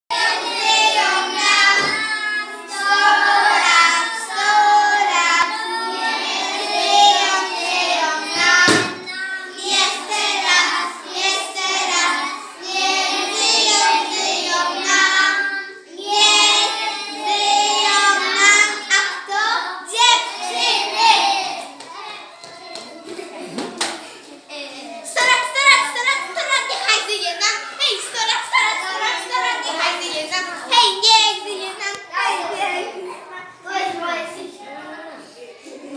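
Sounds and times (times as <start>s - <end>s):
boys singing in unison: 0.1s - 19.7s.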